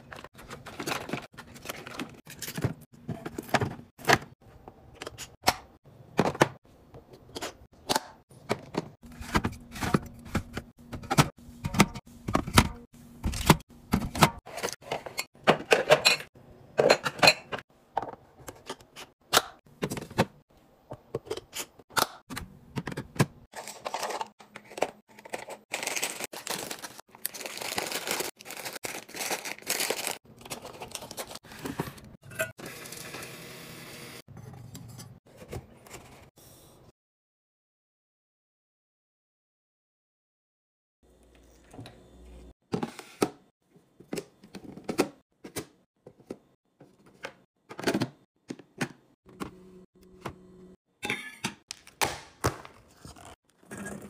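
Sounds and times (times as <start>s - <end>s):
snack bags crinkling: 25.1s - 31.4s.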